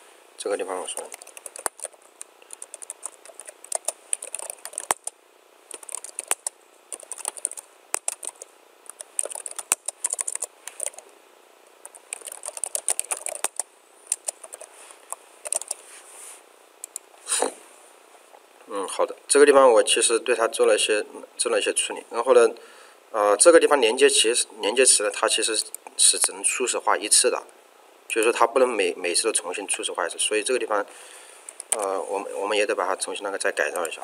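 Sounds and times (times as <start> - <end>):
typing on computer keyboard: 0.9 - 5.1, 5.7 - 11.0, 11.8 - 14.7, 15.4 - 15.8, 31.5 - 31.9.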